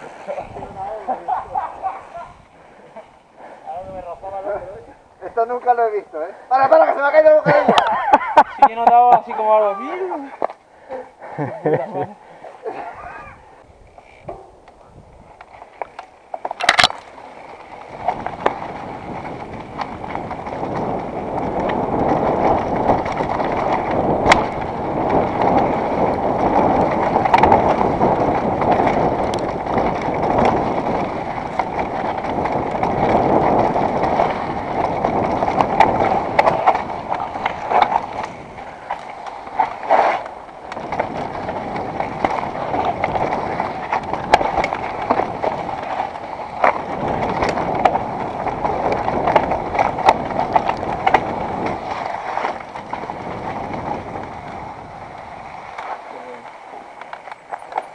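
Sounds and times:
bike tyres rattling over rocks: 0:00.0 - 0:06.0, 0:12.8 - 0:57.9
bike knocking over bumps: 0:17.9 - 0:56.0.

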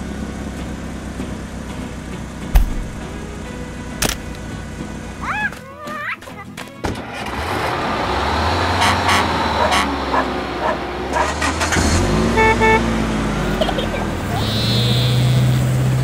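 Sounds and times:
short sharp sounds: 0:02.5 - 0:04.4
car engine hum: 0:07.1 - 0:16.0
car horn beep: 0:12.3 - 0:13.0.

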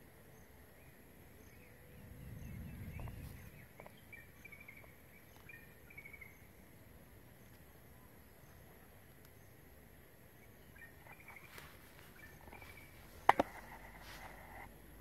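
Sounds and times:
low rumble: 0:01.7 - 0:03.8.

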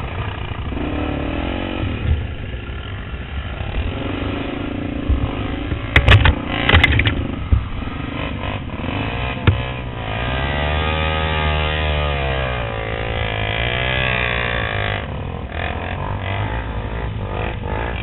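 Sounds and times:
motorcycle engine running: 0:00.0 - 0:18.0
sharp knocks and clatter: 0:05.1 - 0:07.7, 0:09.4 - 0:09.8.

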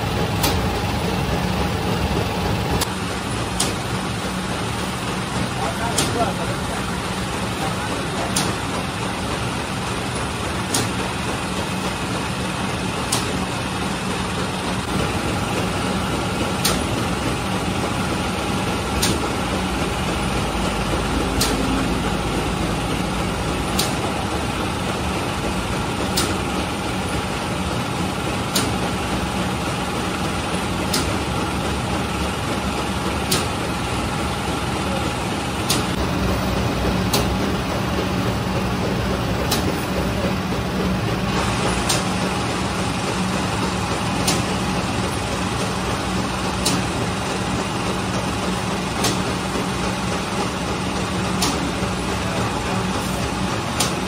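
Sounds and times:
machinery humming: 0:00.0 - 0:54.0
sharp machine click: 0:03.6 - 0:03.8, 0:08.3 - 0:08.6, 0:10.7 - 0:11.0, 0:19.0 - 0:19.2, 0:21.4 - 0:21.7, 0:23.8 - 0:24.0, 0:28.5 - 0:28.8, 0:30.9 - 0:31.2, 0:33.3 - 0:33.5, 0:41.8 - 0:42.1.

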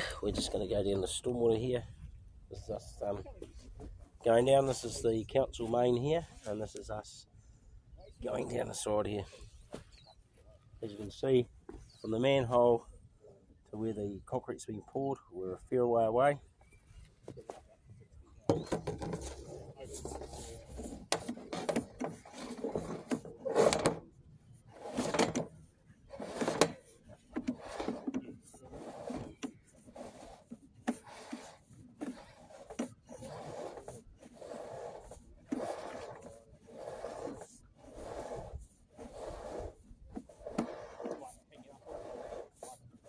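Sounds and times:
rod scraping inside pipe: 0:18.5 - 0:43.0.

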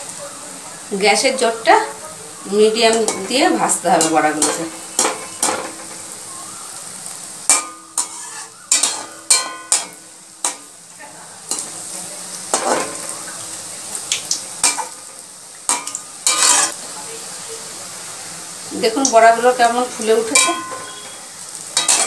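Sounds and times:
fritters sizzling in hot oil: 0:00.0 - 0:22.0
metal spoon scraping a pan: 0:03.0 - 0:06.1, 0:07.5 - 0:10.7, 0:12.5 - 0:13.1, 0:14.6 - 0:15.0, 0:15.7 - 0:16.8, 0:20.2 - 0:21.2, 0:21.8 - 0:22.0.

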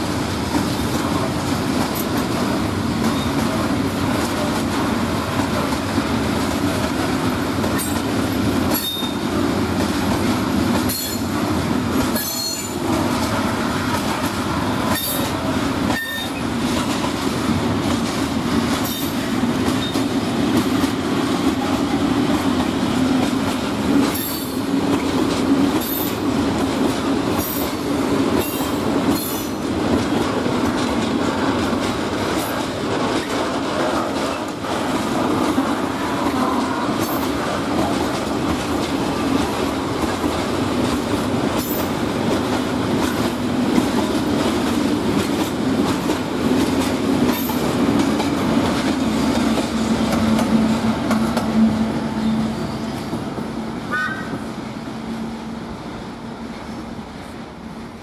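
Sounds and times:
train wheels rumbling on rails: 0:00.0 - 0:58.0
high wheel squeals: 0:16.0 - 0:16.4, 0:51.6 - 0:53.2.

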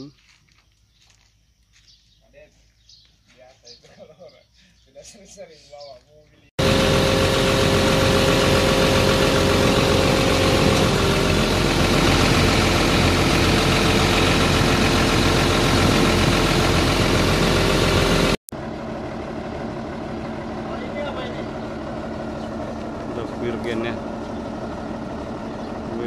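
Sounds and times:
steady whine: 0:06.6 - 0:18.4
diesel engine running loudly: 0:06.6 - 0:26.0.

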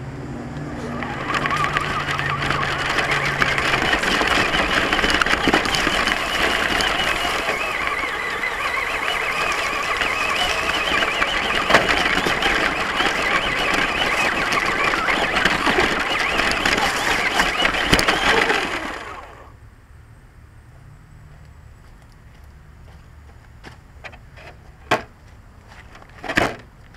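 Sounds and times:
chassis rattling: 0:00.7 - 0:19.5
toy truck motor whine: 0:00.7 - 0:19.6.

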